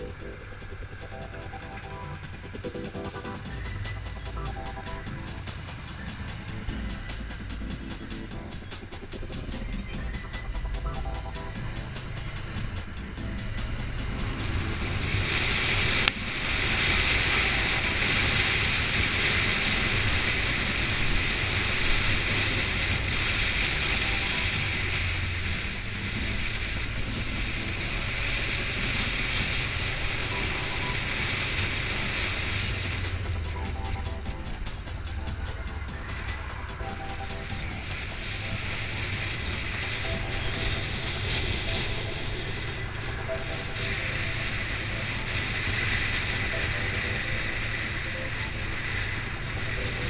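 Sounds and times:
motorcycle engine running: 0.0s - 50.0s
wind and road noise: 0.0s - 50.0s.

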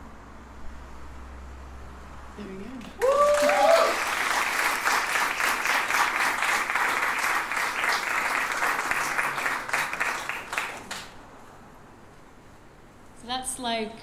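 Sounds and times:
small audience applauding: 3.0s - 11.2s.

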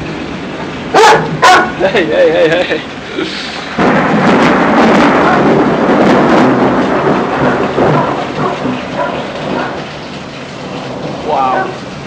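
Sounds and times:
rain falling: 0.0s - 12.0s
loud thunder rumbling: 3.6s - 12.0s.

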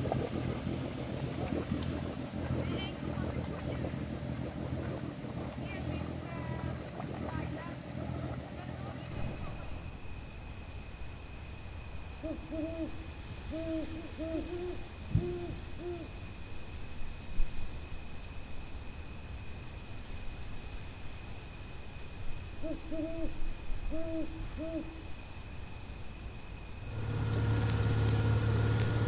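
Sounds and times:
faint high whine: 1.4s - 29.0s
pigeon cooing: 12.2s - 16.1s.

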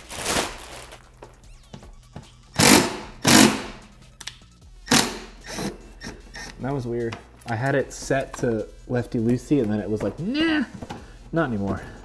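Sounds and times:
background music: 0.0s - 12.0s
ratchet wrench strokes: 2.6s - 3.7s, 4.9s - 6.6s.

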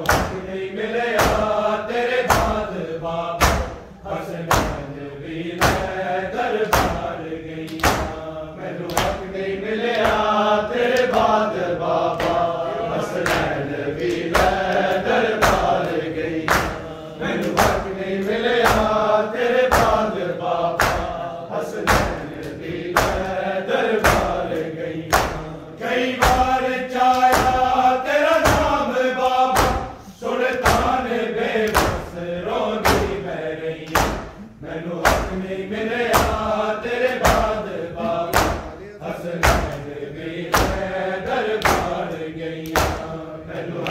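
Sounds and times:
hand slaps on bare chests: 0.0s - 0.4s, 1.1s - 1.6s, 2.2s - 2.7s, 3.4s - 4.9s, 5.6s - 5.9s, 6.6s - 9.3s, 9.9s - 11.4s, 12.1s - 12.5s, 13.2s - 17.9s, 18.5s - 19.0s, 19.7s - 20.1s, 20.8s - 21.2s, 21.8s - 23.3s, 24.0s - 25.5s, 26.2s - 28.8s, 29.5s - 32.1s, 32.8s - 35.4s, 36.1s - 43.9s
men chanting together: 0.0s - 43.9s.

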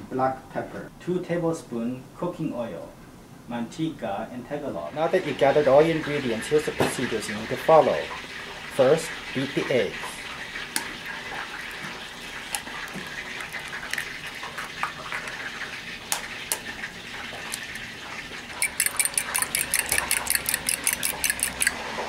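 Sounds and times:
fork beating eggs in bowl: 10.8s - 17.9s, 18.6s - 21.8s
eggshell tapping on glass: 18.6s - 21.7s.

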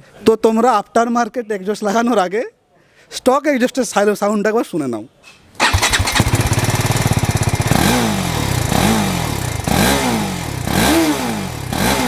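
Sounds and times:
motorcycle engine idling and revving: 5.6s - 12.0s.

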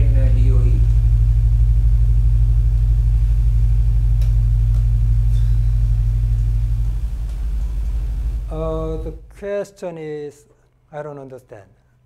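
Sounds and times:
pulsing low electrical hum: 0.0s - 9.5s.

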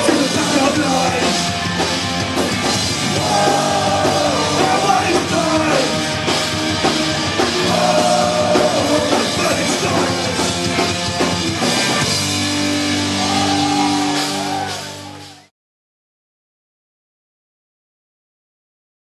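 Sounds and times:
punk rock band playing live: 0.0s - 15.5s
person singing: 3.2s - 6.4s, 7.4s - 10.6s.

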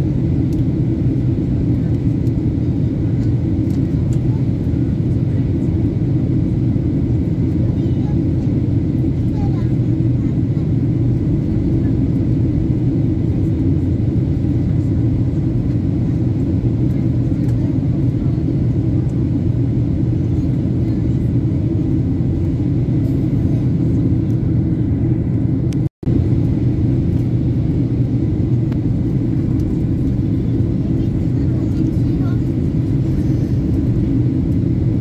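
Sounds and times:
airliner cabin engine rumble: 0.0s - 35.0s.

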